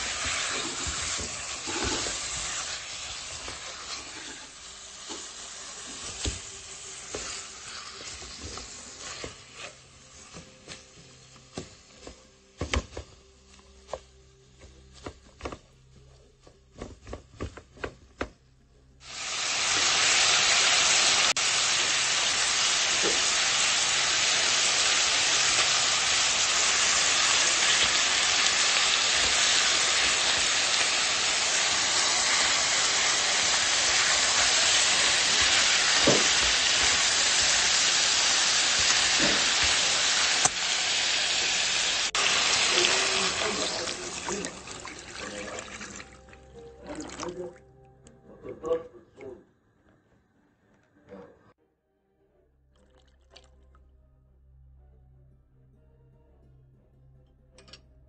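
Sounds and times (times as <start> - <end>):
spatula scraping pan: 0.0 - 4.6
chicken sizzling in oil: 0.0 - 10.4, 19.0 - 45.4.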